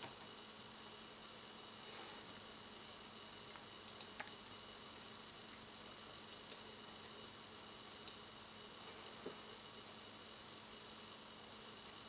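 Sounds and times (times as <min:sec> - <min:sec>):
computer mouse clicks: 0:00.0 - 0:00.3, 0:03.8 - 0:04.4, 0:06.3 - 0:07.0, 0:07.8 - 0:08.2
low hiss and hum: 0:00.0 - 0:12.0.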